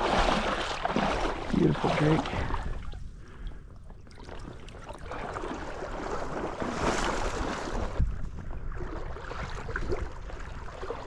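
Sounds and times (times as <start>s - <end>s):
water splashing and sloshing: 0.0s - 11.0s
wind rumbling on microphone: 0.0s - 11.0s.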